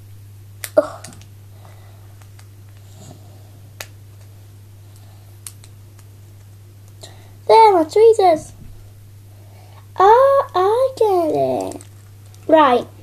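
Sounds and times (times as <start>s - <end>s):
steady low hum: 0.0s - 13.0s
toy pieces clicking: 11.2s - 12.4s.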